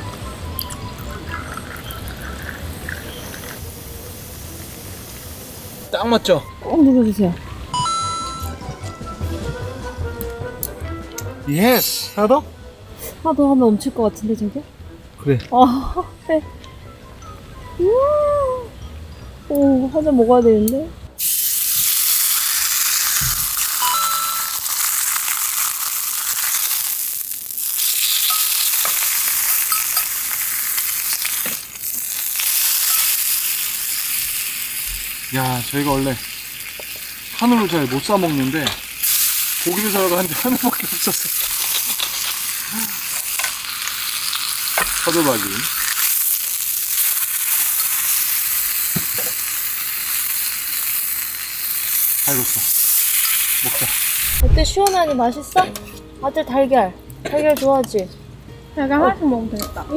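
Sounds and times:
beef sizzling in a skillet: 0:01.4 - 0:05.9, 0:21.2 - 0:54.4.

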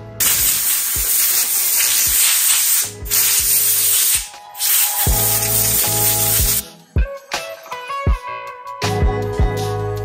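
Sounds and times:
background music with beat: 0:00.0 - 0:10.0
loud hissing spray: 0:00.2 - 0:06.6.

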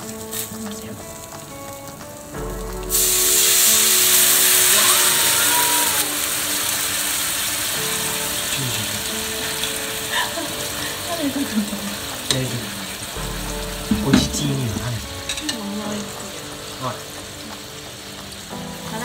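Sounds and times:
fish sizzling in oil: 0:00.0 - 0:19.0
sauce poured into frying pan: 0:02.5 - 0:10.2.

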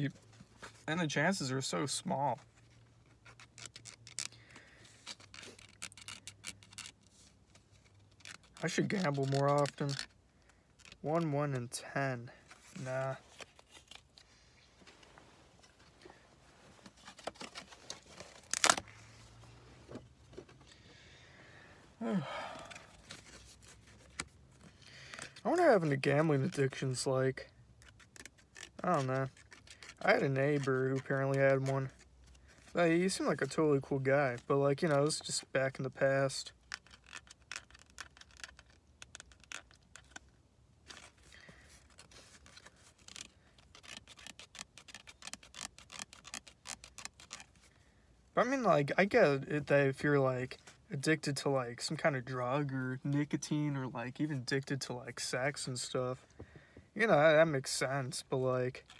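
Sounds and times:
scratching lottery ticket: 0:08.0 - 0:10.1, 0:27.8 - 0:32.0, 0:41.8 - 0:47.7
lottery ticket scratching: 0:08.2 - 0:10.1
person sighing: 0:20.8 - 0:23.1.

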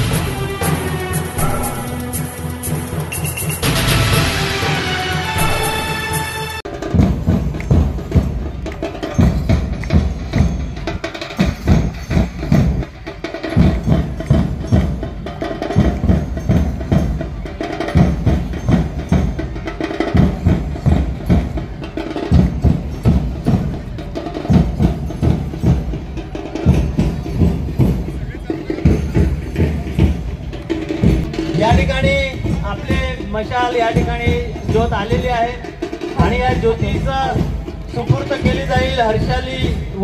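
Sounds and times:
steady drum beat: 0:00.0 - 0:40.0.

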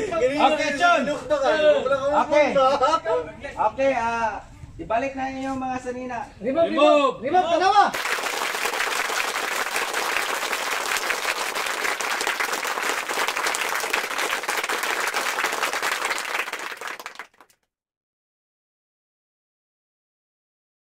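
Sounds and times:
crowd applause: 0:07.9 - 0:17.5.

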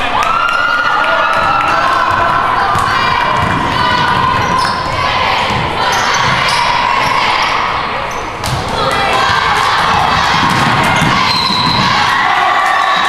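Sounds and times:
crowd voices and shouts: 0:00.0 - 0:13.0
basketball bouncing on wooden floor: 0:02.7 - 0:06.6, 0:09.8 - 0:12.0.

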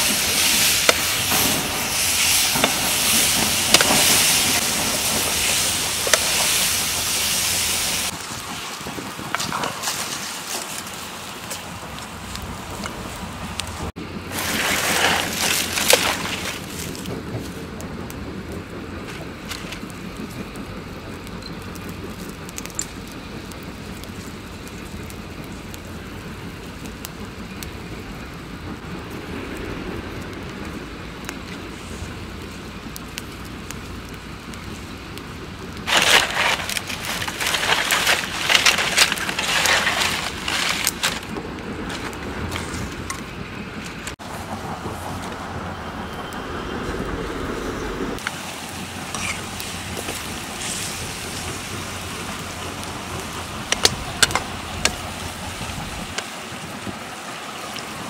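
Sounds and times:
wood fire crackling: 0:00.0 - 0:58.0.

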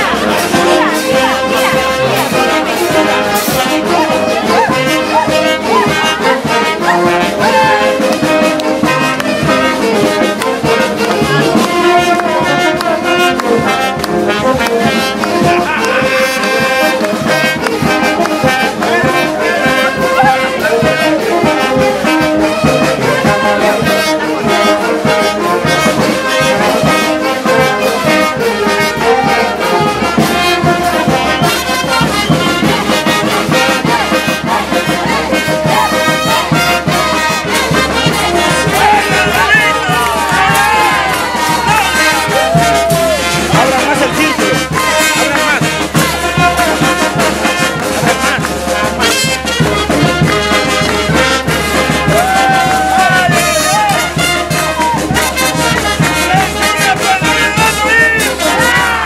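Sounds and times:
brass band playing: 0:00.0 - 0:59.0.

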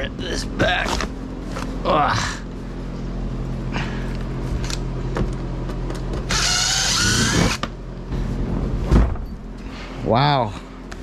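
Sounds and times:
cordless drill running: 0:06.3 - 0:07.6.

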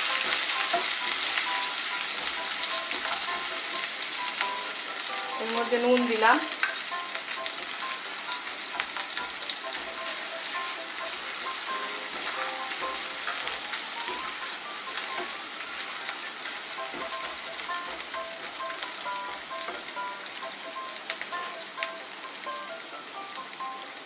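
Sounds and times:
spice paste sizzling in hot oil: 0:00.0 - 0:24.0
spatula stirring in pan: 0:06.5 - 0:22.0.

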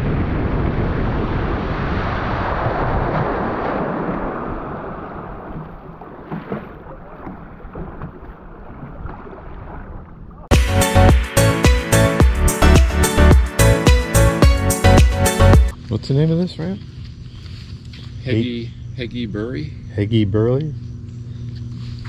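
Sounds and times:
water spray and wind rushing: 0:00.0 - 0:10.3
water slapping: 0:01.3 - 0:10.5.

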